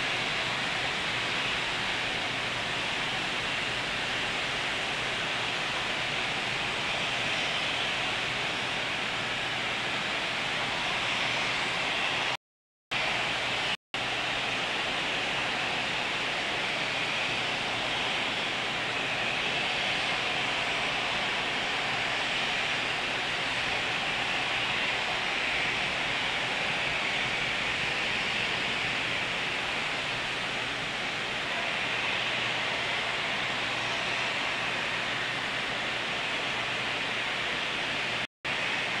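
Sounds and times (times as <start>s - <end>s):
steady hiss: 13.0s - 39.0s.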